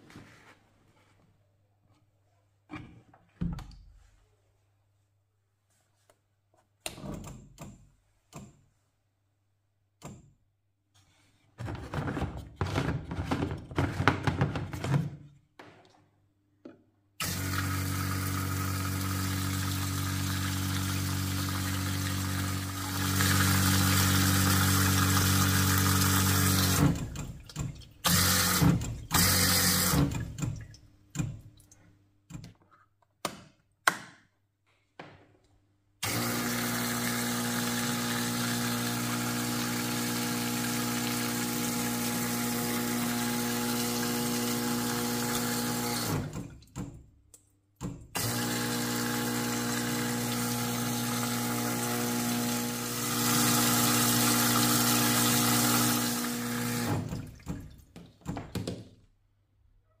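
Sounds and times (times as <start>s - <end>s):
electric pump running: 17.2s - 27.4s, 28.0s - 30.5s, 36.0s - 46.4s, 48.2s - 57.4s
drips and knocks: 57.1s - 58.8s.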